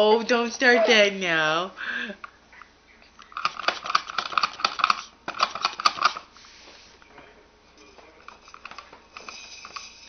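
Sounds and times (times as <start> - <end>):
plastic toys clicking and rattling: 3.3 - 6.3, 8.2 - 10.0.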